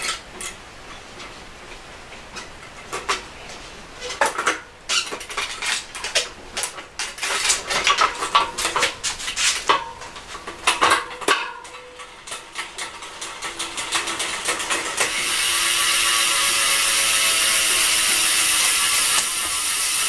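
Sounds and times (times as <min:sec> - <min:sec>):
metallic clicks of bicycle parts: 0:09.6 - 0:16.8.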